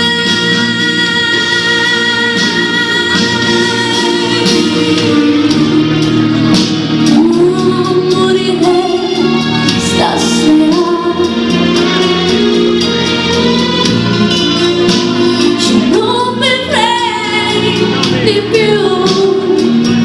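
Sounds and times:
woman singing into a microphone: 0.0 - 12.5, 14.3 - 20.0
instrumental accompaniment: 0.0 - 20.0.

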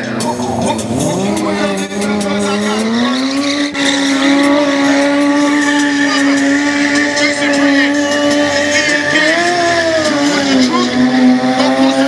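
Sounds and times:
motorcycle engine revving high: 0.0 - 12.0.

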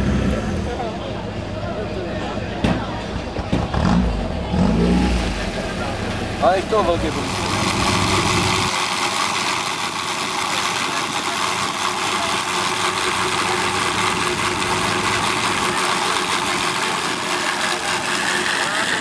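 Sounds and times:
pump engine running: 5.5 - 19.0.

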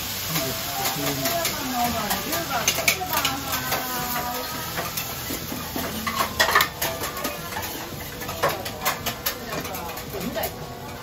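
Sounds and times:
low kitchen background: 0.0 - 11.0
metal utensils scraping griddle: 0.3 - 11.0.

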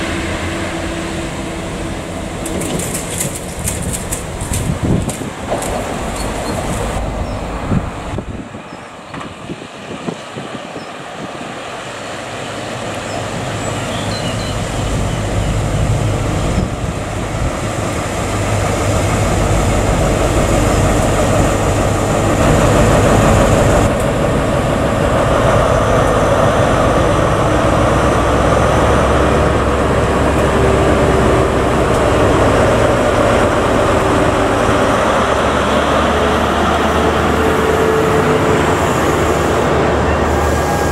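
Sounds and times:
diesel engine drone: 0.0 - 9.9, 11.0 - 40.9
wheels on rails: 2.3 - 7.5.

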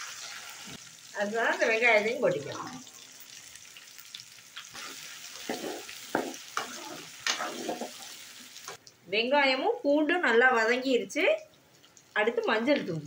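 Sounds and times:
onions sizzling in hot oil: 0.0 - 8.8
metal ladle scraping pan: 4.8 - 8.1.

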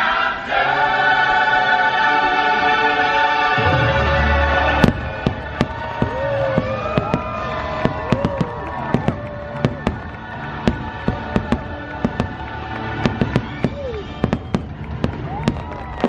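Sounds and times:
choral show music: 0.0 - 16.0
fireworks bangs and crackles: 3.6 - 16.0.

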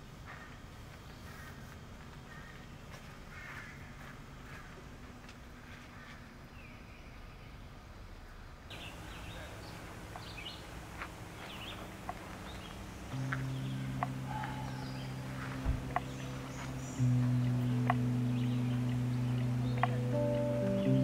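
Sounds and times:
outdoor background noise: 0.0 - 21.0
birds chirping: 0.3 - 21.0
low steady tone: 8.7 - 21.0.

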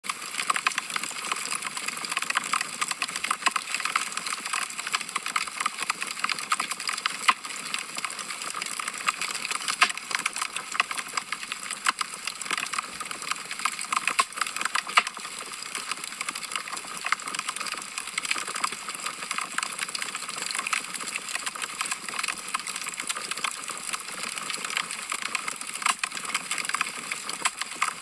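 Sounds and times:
wood fire crackling: 8.4 - 18.7.

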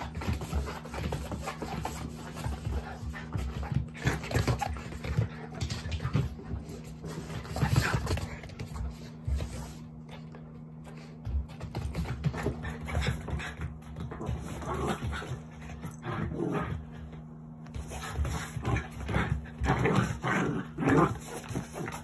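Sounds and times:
paws scuffling on carpet: 0.0 - 22.0
dog growling playfully: 14.3 - 17.0, 18.5 - 22.0.

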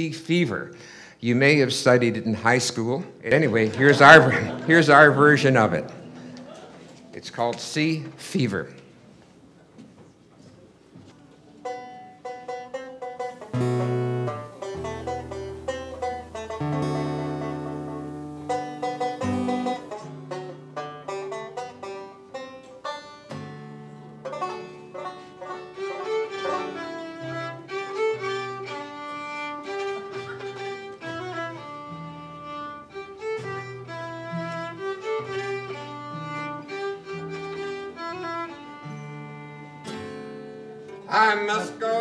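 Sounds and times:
strummed guitars: 0.0 - 8.8, 11.6 - 42.0
banjo: 1.2 - 7.4, 11.3 - 41.5
bowed fiddle melody: 3.2 - 6.4, 11.6 - 41.6.

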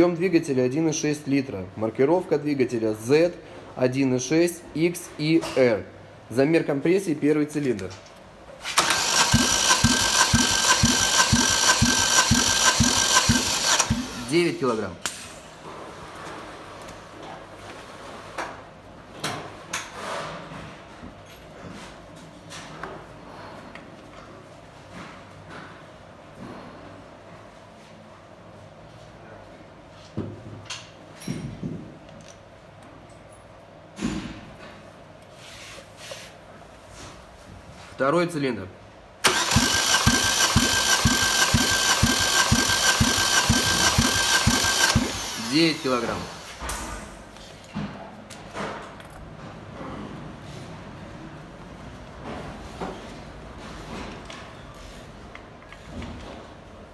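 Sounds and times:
engine cranking on starter motor: 8.6 - 15.5, 39.2 - 47.2.

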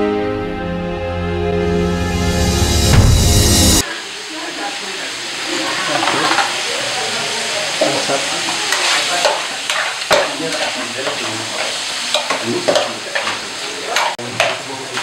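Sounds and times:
meat and onions sizzling: 2.8 - 15.0
utensil scraping a pan: 8.7 - 14.6.

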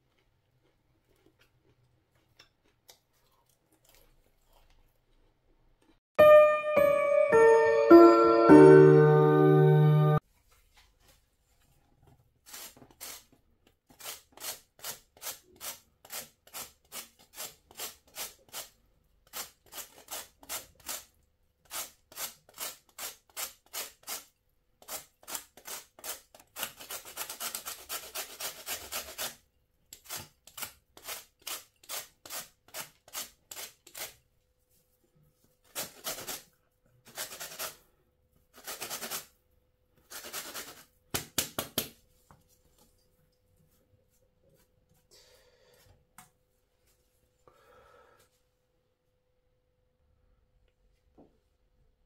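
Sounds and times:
peel scraping on metal grater: 13.9 - 34.2, 37.1 - 37.8.

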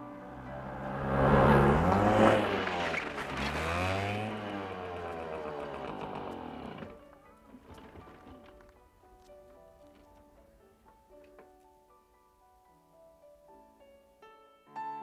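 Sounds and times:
vehicle engine passing by: 0.0 - 7.0.

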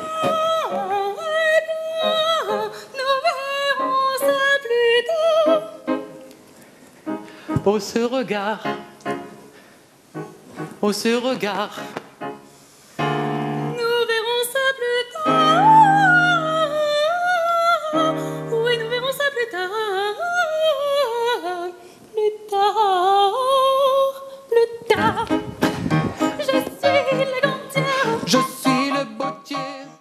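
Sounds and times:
high voice singing with vibrato: 0.0 - 6.0, 13.7 - 30.0
piano chords: 7.1 - 9.5, 10.2 - 13.9, 15.2 - 17.2, 17.8 - 19.3, 24.9 - 30.0.

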